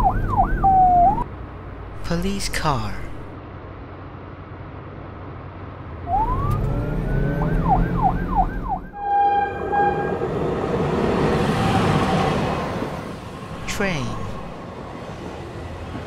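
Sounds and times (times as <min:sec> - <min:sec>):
police siren wailing and yelping: 0:00.0 - 0:01.2, 0:05.9 - 0:10.0
approaching train rushing: 0:05.8 - 0:16.0
train horn blast: 0:08.9 - 0:10.6.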